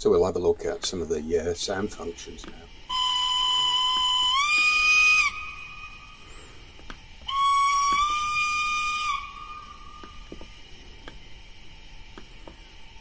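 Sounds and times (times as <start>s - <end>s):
steam whistle from small speaker: 2.8s - 10.5s.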